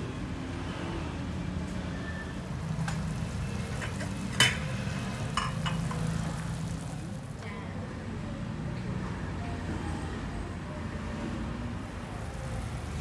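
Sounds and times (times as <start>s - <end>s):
broth boiling hard: 2.4s - 7.4s, 12.0s - 13.0s.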